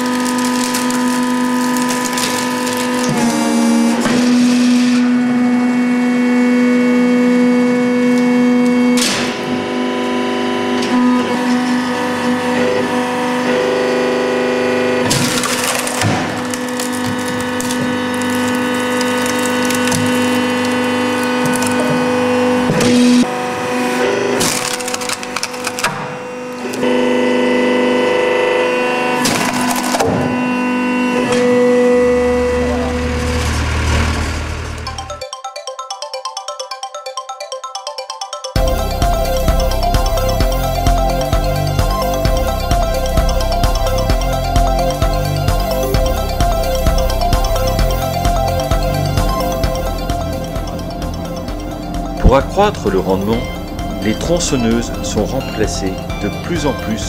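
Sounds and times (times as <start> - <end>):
hydraulic motor pump whine: 0.0 - 35.2, 38.6 - 57.0
log splitting: 15.0 - 23.2.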